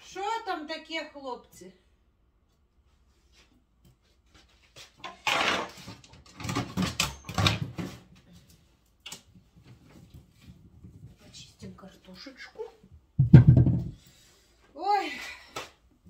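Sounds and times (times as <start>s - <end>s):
knocking in a cabinet: 13.2s - 14.0s.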